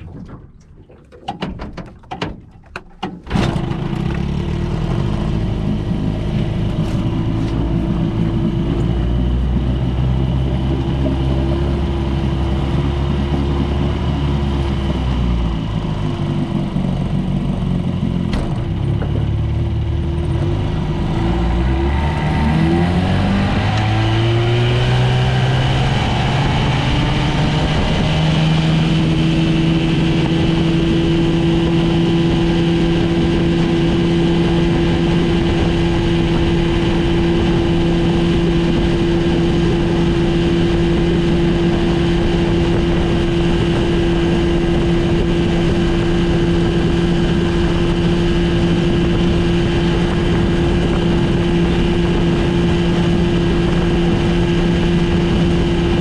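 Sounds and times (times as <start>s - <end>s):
water rushing past hull: 0.0s - 17.6s
outboard motor revving: 0.0s - 56.0s.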